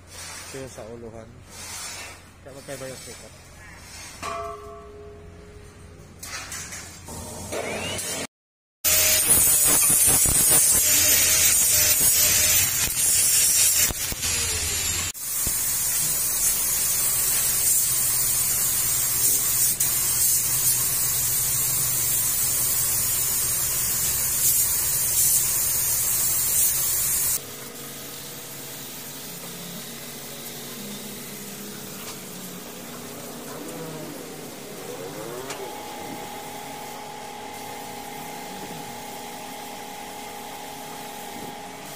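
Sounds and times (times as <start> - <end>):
paint spray gun hissing: 14.4 - 32.3.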